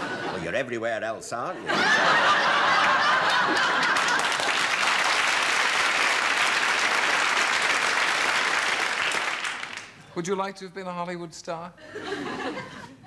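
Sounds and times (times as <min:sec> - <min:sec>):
audience laughter: 0:00.0 - 0:00.6, 0:01.5 - 0:04.6, 0:11.8 - 0:13.0
audience applauding: 0:02.6 - 0:10.0.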